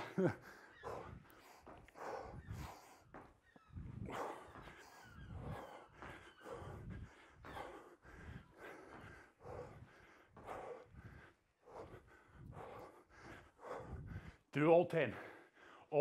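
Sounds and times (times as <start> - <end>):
person breathing hard: 0.0 - 15.9.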